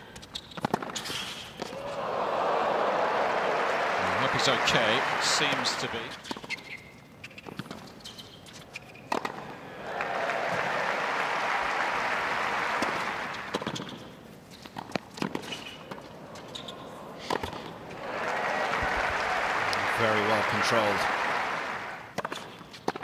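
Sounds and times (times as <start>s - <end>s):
crowd applause: 1.8s - 6.2s, 9.7s - 13.6s, 17.8s - 22.1s.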